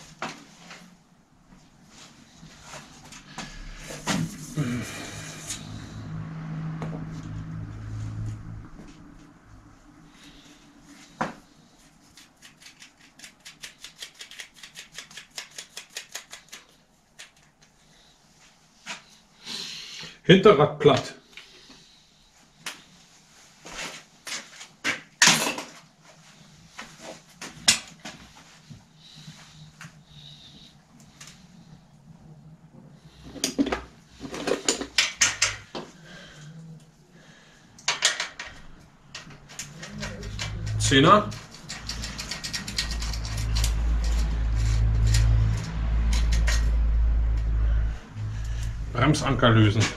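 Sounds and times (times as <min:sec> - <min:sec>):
bicycle freewheel clicking: 0:41.5 - 0:46.7.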